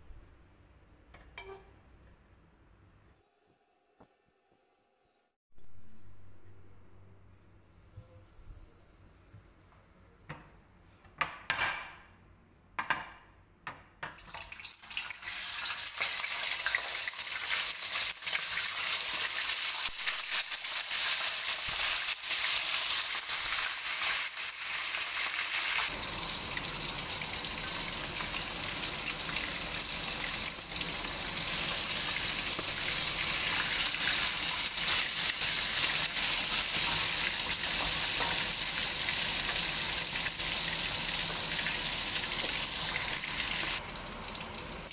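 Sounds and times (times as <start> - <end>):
fish sizzling in hot oil: 14.6 - 43.8.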